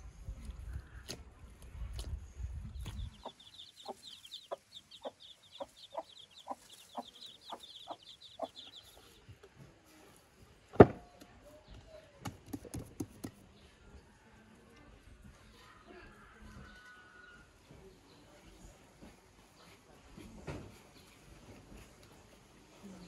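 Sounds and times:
chicks peeping: 1.9s - 9.4s
hen clucking: 2.8s - 9.2s.

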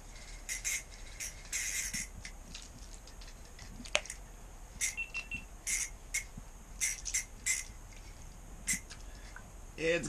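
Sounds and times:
fishing reel clicking: 0.5s - 2.1s, 5.7s - 7.7s.

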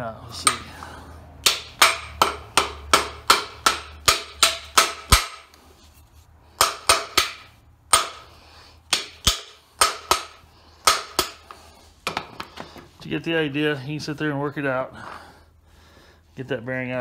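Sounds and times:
hammer striking metal: 1.4s - 5.5s, 6.6s - 8.3s, 8.9s - 11.4s.

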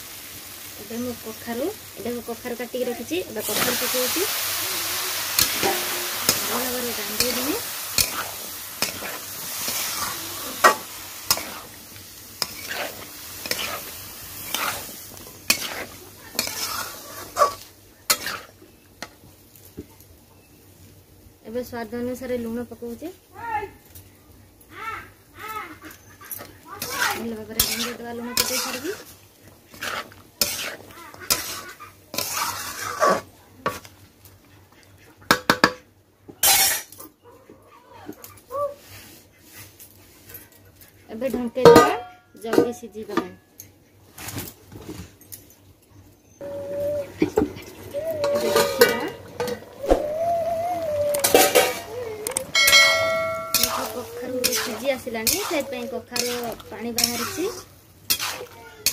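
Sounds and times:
vegetables sizzling in pan: 0.0s - 24.0s, 25.1s - 34.4s, 36.4s - 37.0s, 46.4s - 58.9s
spatula scraping metal pan: 5.4s - 11.7s, 12.4s - 18.5s, 26.3s - 29.1s, 29.7s - 33.9s, 36.4s - 36.9s, 47.2s - 50.0s, 51.1s - 52.0s, 52.6s - 58.9s
spatula clinking on metal pan: 41.6s - 42.2s, 51.2s - 51.9s, 52.6s - 57.3s.

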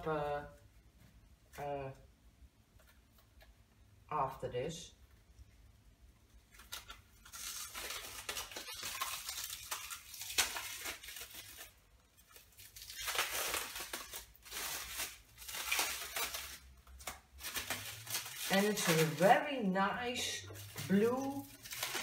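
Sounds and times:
plastic wrapping crinkling and tearing: 6.4s - 22.0s.

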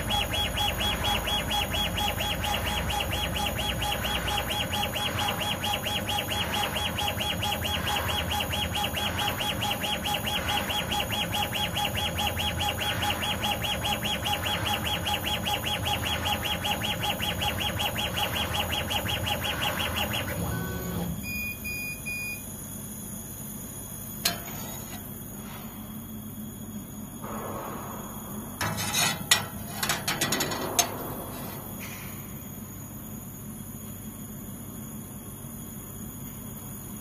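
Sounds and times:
laser engraver motors whirring: 0.0s - 21.6s
short beeps: 19.8s - 22.5s
steady tone: 27.2s - 32.6s.

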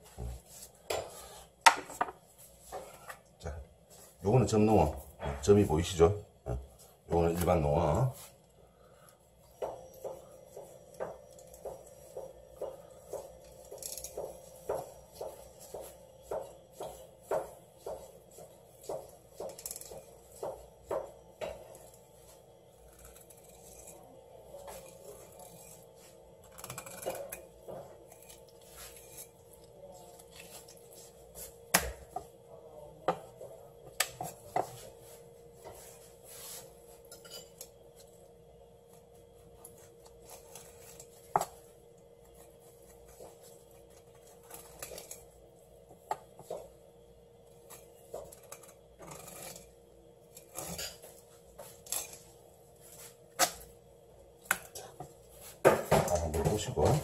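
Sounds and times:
faint steady hum: 0.0s - 57.0s
knife scraping: 19.4s - 31.6s, 34.2s - 38.1s, 47.6s - 53.6s.

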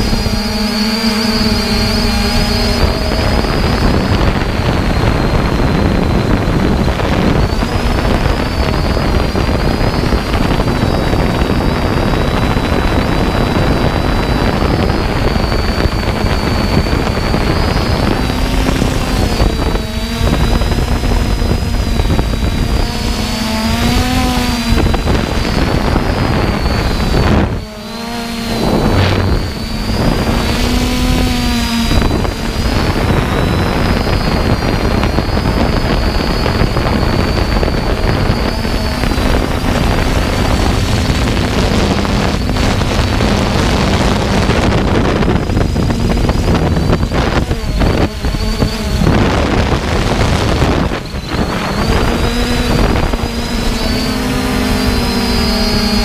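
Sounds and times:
drone motors whining: 0.0s - 56.0s
wind noise on microphone: 0.0s - 56.0s.

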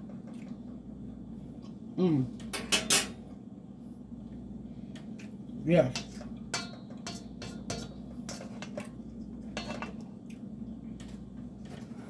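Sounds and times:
steady low hum: 0.0s - 12.0s
metal spoon scraping a bowl: 6.0s - 8.9s.

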